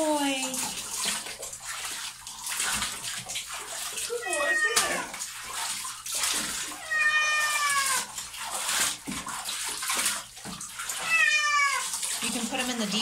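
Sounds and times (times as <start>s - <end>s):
water in a bathtub: 0.0s - 13.0s
cat meowing: 4.1s - 5.2s, 6.7s - 8.2s, 11.0s - 11.9s.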